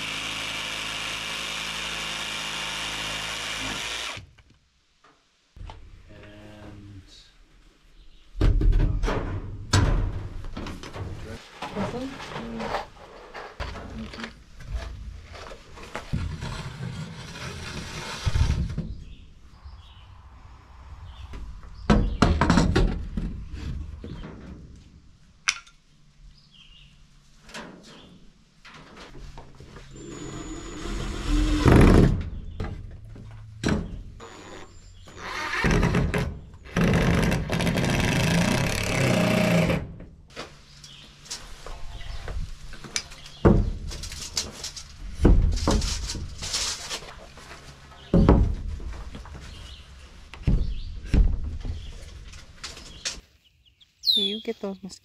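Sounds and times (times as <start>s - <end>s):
boards knocked and scraped: 8.4s - 19.1s, 41.7s - 53.2s
steady dense noise: 19.3s - 24.0s.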